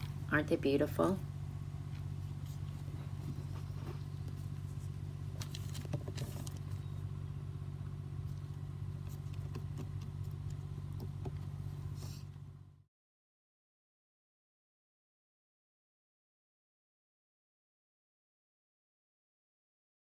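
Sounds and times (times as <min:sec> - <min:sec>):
rustles and taps on newspaper: 0:05.3 - 0:06.8.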